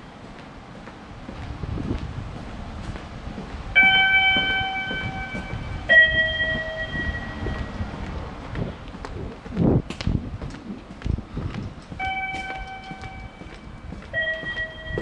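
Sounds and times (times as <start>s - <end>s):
footsteps on concrete: 0.0s - 15.0s
two-note chime: 3.8s - 7.7s, 12.0s - 13.4s, 14.2s - 15.0s.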